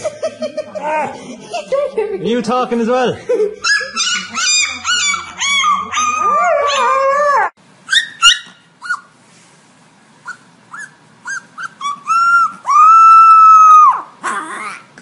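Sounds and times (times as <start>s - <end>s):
puppy squeaks and yips: 3.6s - 7.0s, 7.9s - 9.1s, 10.2s - 14.0s
puppy howling: 3.6s - 9.0s, 10.7s - 14.9s.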